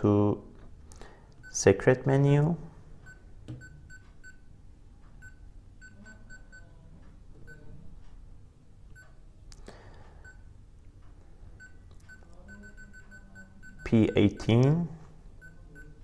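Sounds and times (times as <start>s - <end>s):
high-pitched thermostat beeps: 1.4s - 1.6s, 3.0s - 6.8s, 7.4s - 7.8s, 8.9s - 9.2s, 10.2s - 10.6s, 11.5s - 16.0s.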